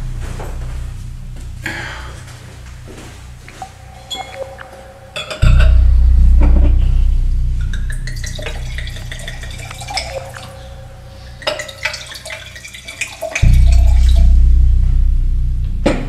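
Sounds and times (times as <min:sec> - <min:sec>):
deep low note: 0:00.0 - 0:11.8, 0:13.4 - 0:16.0
wine pouring into a glass: 0:08.4 - 0:10.5, 0:11.4 - 0:13.4.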